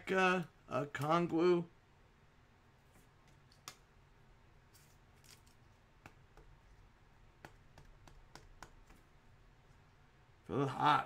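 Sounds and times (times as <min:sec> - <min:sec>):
trading cards handled: 0:04.7 - 0:06.8.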